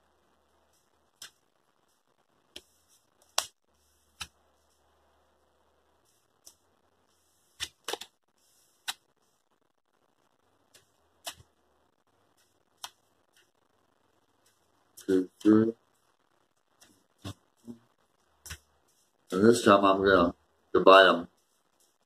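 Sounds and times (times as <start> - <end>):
cards clicking and tapping: 7.6 - 8.2, 10.7 - 11.5.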